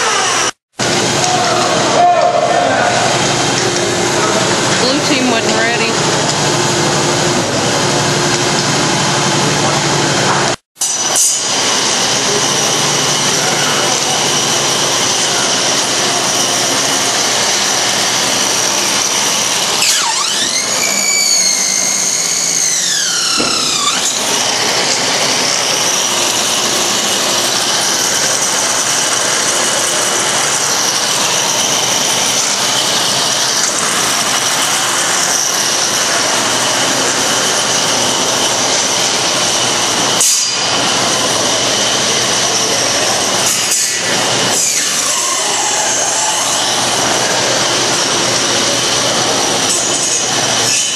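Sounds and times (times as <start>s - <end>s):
electric motors whining: 0.0s - 50.9s
steady mechanical hiss: 6.0s - 50.8s.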